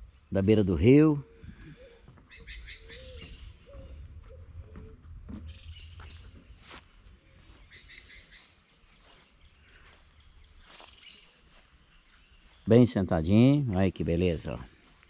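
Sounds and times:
high insect hum: 0.0s - 15.0s
birds chirping: 0.9s - 15.0s
low rumble: 3.4s - 7.0s.

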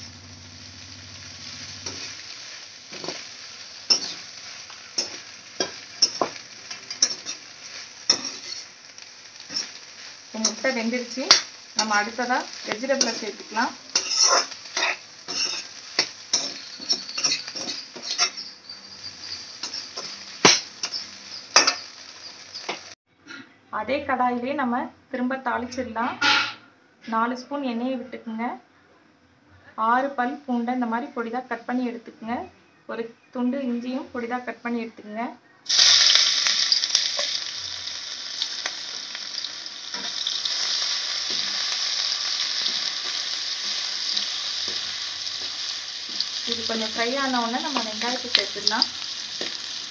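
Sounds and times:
light sizzle: 0.0s - 23.0s, 35.7s - 49.9s
metal spatula scraping a pan: 1.2s - 3.3s, 3.9s - 8.8s, 9.4s - 22.8s, 26.2s - 26.6s
spoon tapping and scraping pan: 3.9s - 4.3s, 5.0s - 7.5s, 8.1s - 8.7s, 14.0s - 18.5s, 19.6s - 21.9s.

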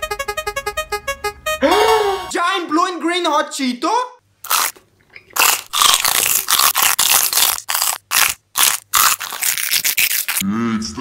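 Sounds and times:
loud crunchy chewing of puffs: 4.4s - 10.4s.

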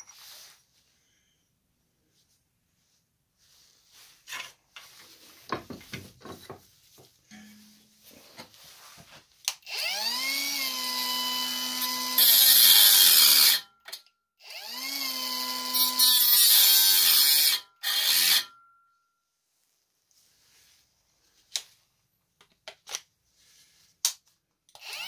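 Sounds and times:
angle grinder whining: 9.6s - 13.6s, 14.4s - 18.5s, 24.8s - 25.0s
grinder grinding metal bar: 9.8s - 13.6s, 14.5s - 18.6s.

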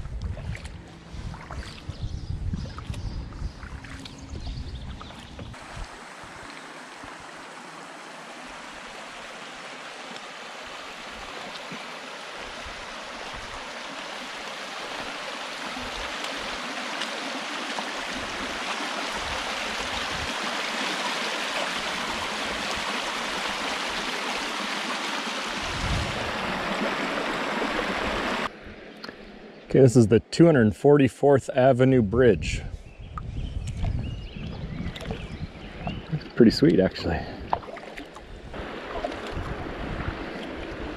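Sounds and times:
river water rushing over rocks: 5.6s - 28.5s, 38.6s - 40.9s.

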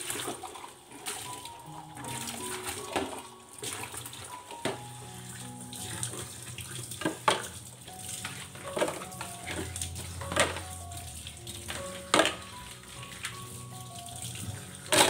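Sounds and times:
kitchen tap running: 0.0s - 15.0s
jars clattering in plastic tub: 8.3s - 10.7s, 11.7s - 12.6s.

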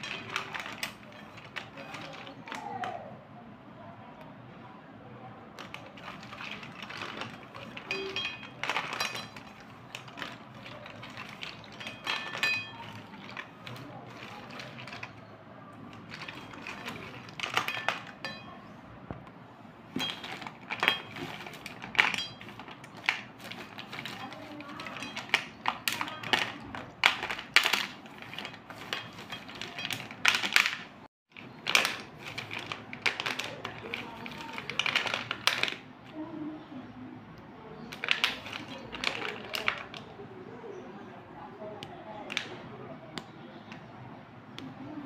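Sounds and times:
pencils clattering on metal plate: 0.0s - 3.0s, 5.5s - 18.8s, 19.9s - 35.9s, 37.9s - 40.2s.

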